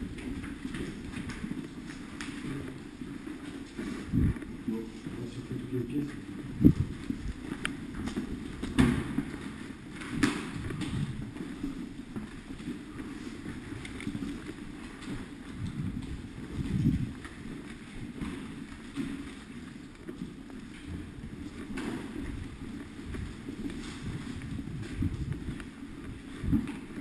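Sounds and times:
footsteps: 0.0 - 27.0
gear rustling against camera: 0.0 - 27.0.

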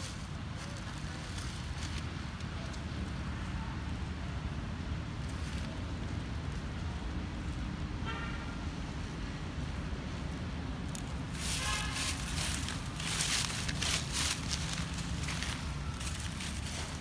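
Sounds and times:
dry leaves rustling and crackling: 0.0 - 17.0
low outdoor rumble: 0.0 - 17.0.

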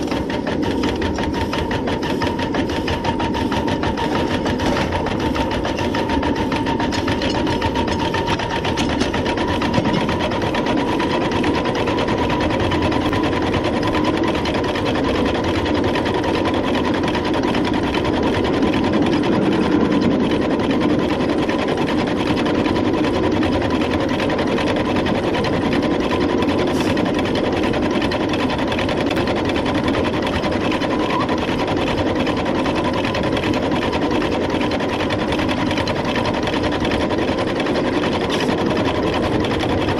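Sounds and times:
steam locomotive clatter: 0.0 - 39.9.

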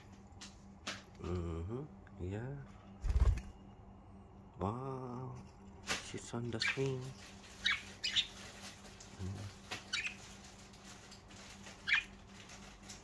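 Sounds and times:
budgerigars chirping: 6.6 - 8.4, 9.9 - 10.3, 11.8 - 12.2.

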